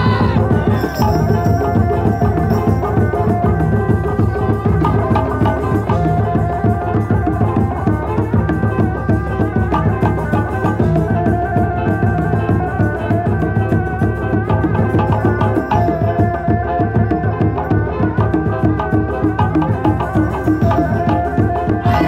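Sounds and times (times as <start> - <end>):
held melodic line: 0.0 - 13.1.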